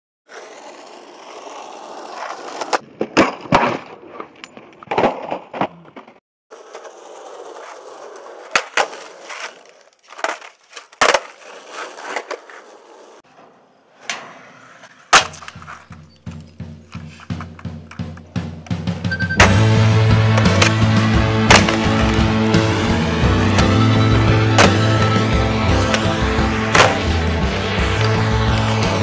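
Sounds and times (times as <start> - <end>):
skateboard wheels rolling on concrete: 0.3 - 29.0
skateboard pops and clacks: 2.0 - 6.2, 8.4 - 12.6, 15.1 - 18.8, 21.5 - 22.2, 26.7 - 27.2
music with bass and drums: 16.0 - 29.0.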